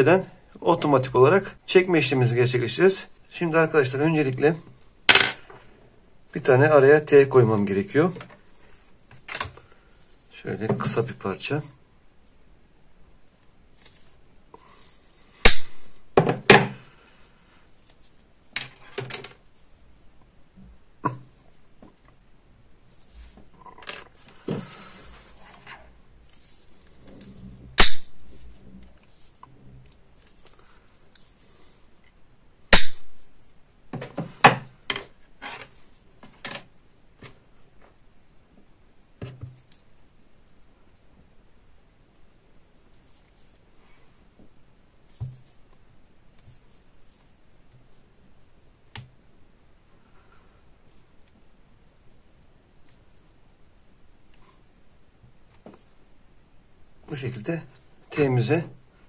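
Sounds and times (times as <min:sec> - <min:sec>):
sharp plastic snap: 0:15.5 - 0:15.7, 0:27.8 - 0:28.2, 0:32.7 - 0:33.2.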